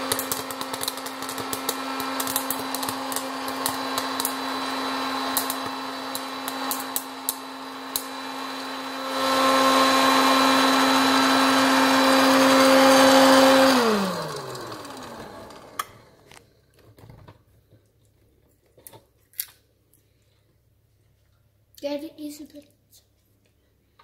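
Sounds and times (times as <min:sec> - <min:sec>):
popcorn kernels popping: 0:00.0 - 0:08.4
popcorn maker fan motor humming: 0:00.0 - 0:16.4.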